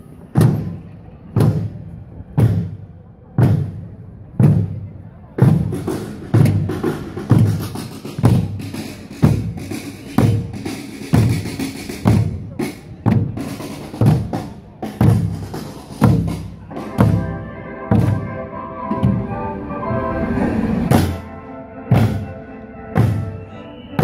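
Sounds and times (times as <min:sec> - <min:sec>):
barrel drums beaten with sticks: 0:00.3 - 0:02.8, 0:03.4 - 0:17.2.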